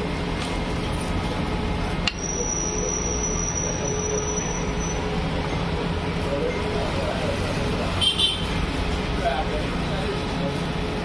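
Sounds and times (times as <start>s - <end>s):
food stall background din: 0.0s - 11.0s
thin high ringing tone: 2.1s - 5.7s.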